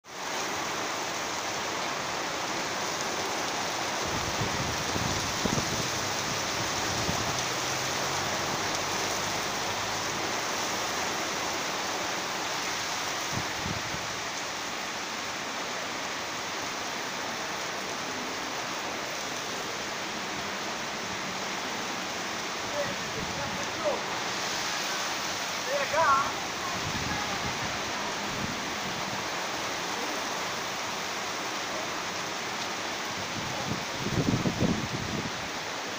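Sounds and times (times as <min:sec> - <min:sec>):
heavy rain hissing: 0:00.1 - 0:35.9.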